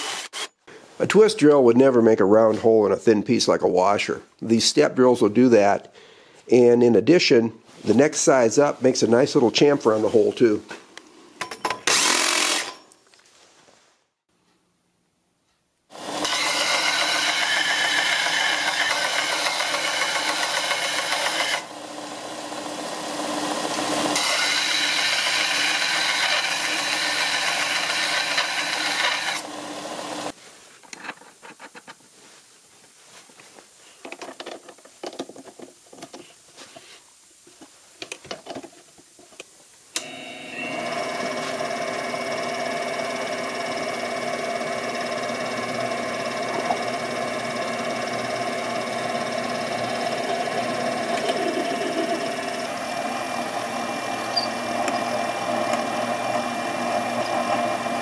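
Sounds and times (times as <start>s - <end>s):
belt sander grinding metal: 16.0s - 30.3s, 40.0s - 58.0s
metal lathe running: 16.0s - 30.3s, 40.0s - 58.0s.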